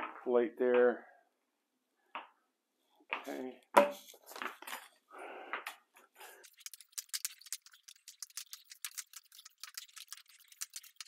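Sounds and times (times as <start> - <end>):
paint roller crackling: 6.4 - 11.0.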